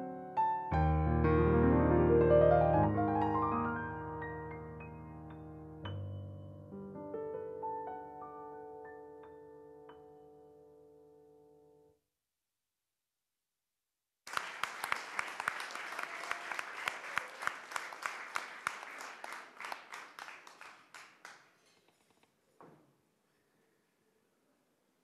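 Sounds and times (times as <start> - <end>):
audience applauding: 14.3 - 21.7.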